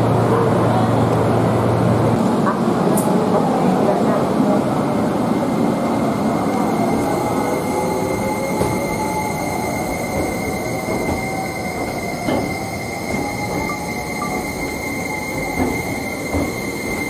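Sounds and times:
rumble of train cars: 0.0 - 17.0
train wheel squeal: 6.4 - 17.0.

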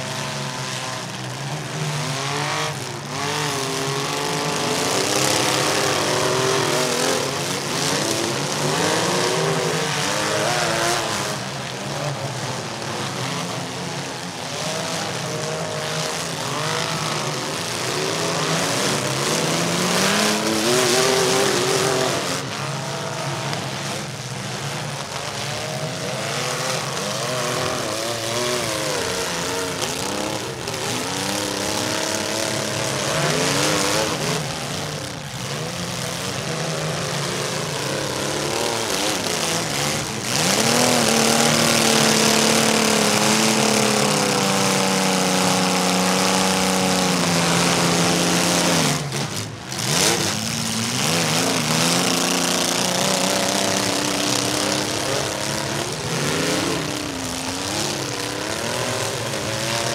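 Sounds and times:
car engines revving: 0.0 - 59.9.

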